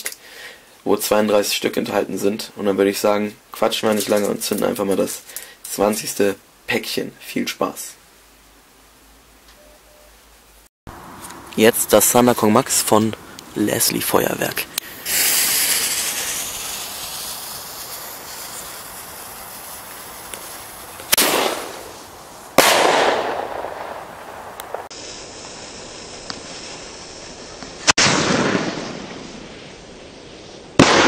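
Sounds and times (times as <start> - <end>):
fuse hissing: 14.7 - 22.6
firework shell bursting with echo: 14.9 - 27.0
lift charge firing: 22.6 - 24.9.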